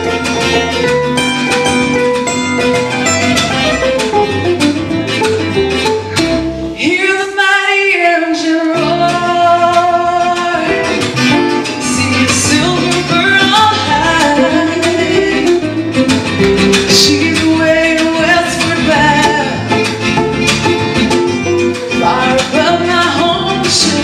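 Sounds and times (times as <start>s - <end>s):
upright bass: 0.0s - 7.2s, 8.5s - 24.0s
acoustic guitars: 0.0s - 24.0s
woman singing: 6.7s - 11.0s, 11.7s - 16.0s, 16.6s - 20.0s, 21.9s - 24.0s.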